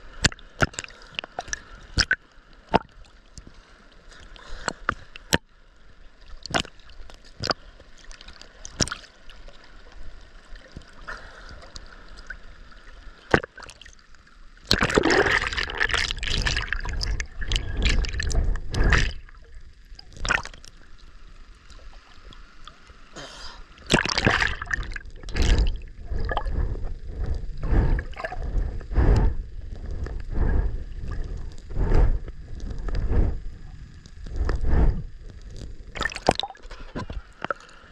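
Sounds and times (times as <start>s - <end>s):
drip-like ticks: 0.2s - 5.5s, 6.3s - 9.1s, 35.2s - 37.8s
churning underwater noise: 14.6s - 20.8s, 23.1s - 37.8s
water sloshing against camera: 14.6s - 37.9s.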